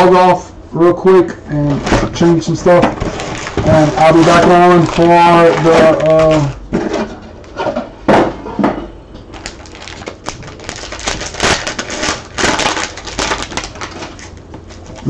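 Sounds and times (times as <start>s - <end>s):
card wrappers crinkling: 2.2s - 6.6s, 9.3s - 15.0s.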